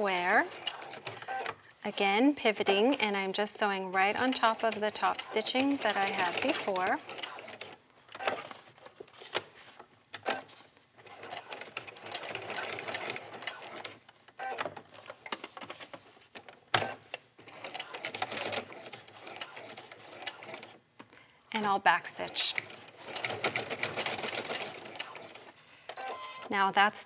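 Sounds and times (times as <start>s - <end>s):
sewing machine stitching: 0.0s - 8.6s, 10.2s - 14.7s, 16.8s - 20.8s, 22.1s - 26.5s.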